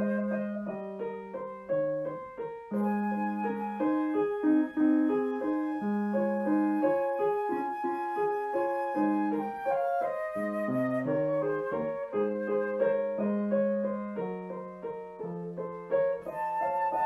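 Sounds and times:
piano melody: 0:00.0 - 0:17.0.

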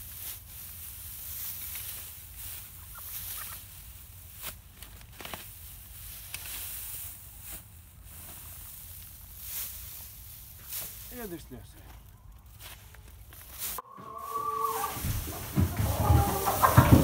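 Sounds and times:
straw rustling and crackling: 0:00.0 - 0:17.0
hen clucking: 0:02.6 - 0:03.8, 0:13.8 - 0:17.0.

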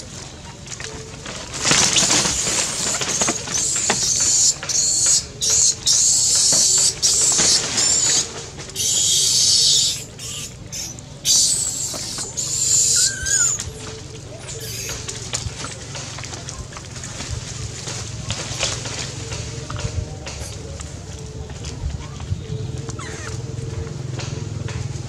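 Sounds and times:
monkeys screaming: 0:01.7 - 0:15.8, 0:22.8 - 0:24.0.

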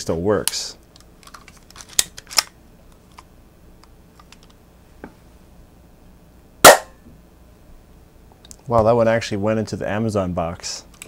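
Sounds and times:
airsoft pistol shot: 0:06.6 - 0:06.9.

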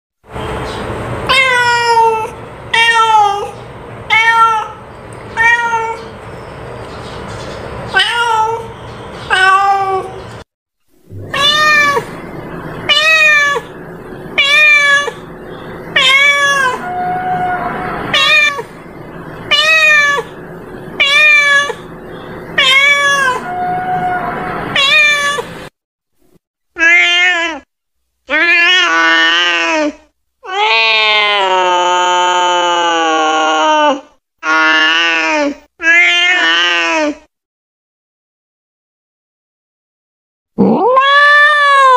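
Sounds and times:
cat meowing: 0:01.3 - 0:06.1, 0:07.9 - 0:08.7, 0:09.3 - 0:10.2, 0:11.1 - 0:13.8, 0:14.4 - 0:15.3, 0:15.9 - 0:18.8, 0:19.5 - 0:20.4, 0:21.0 - 0:21.9, 0:22.6 - 0:25.6, 0:35.8 - 0:37.2, 0:40.6 - 0:41.9.

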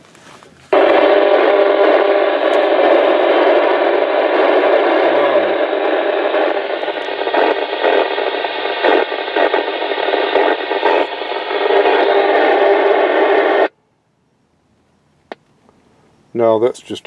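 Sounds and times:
radio static hiss: 0:00.7 - 0:13.7.

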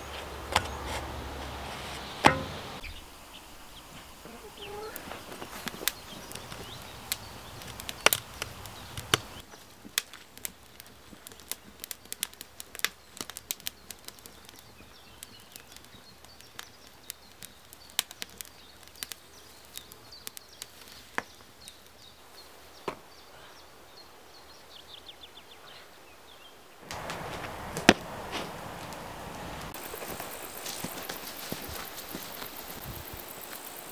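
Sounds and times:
faint birdsong: 0:00.0 - 0:09.8, 0:10.4 - 0:33.9
wood fire crackling: 0:00.0 - 0:25.1, 0:26.2 - 0:33.9
rushing outdoor noise: 0:26.8 - 0:33.9.

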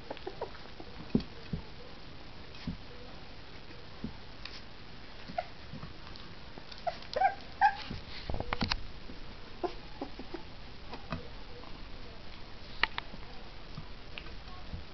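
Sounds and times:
puppies whimpering: 0:06.8 - 0:07.9.

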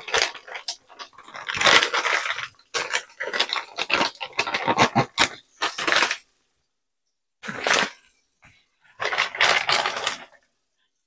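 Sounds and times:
rustling: 0:07.4 - 0:10.5.

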